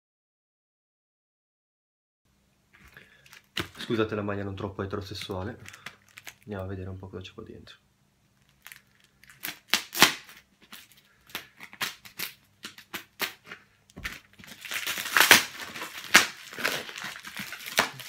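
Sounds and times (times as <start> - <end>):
wrapping tearing and crinkling: 2.8 - 4.2, 4.9 - 6.6, 8.3 - 18.0
knife slitting plastic wrapping: 8.6 - 18.0.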